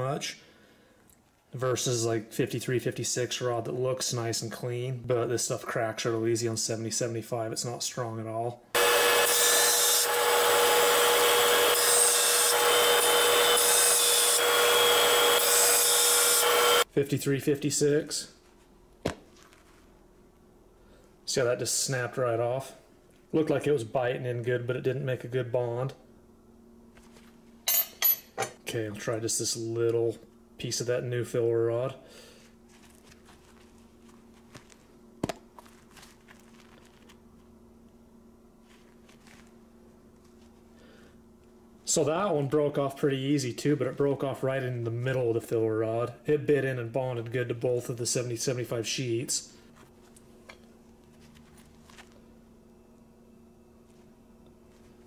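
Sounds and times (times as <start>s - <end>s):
faint steady hum: 0.0s - 55.0s
saw cutting hiss: 8.8s - 16.8s
bandsaw hum: 8.8s - 16.9s.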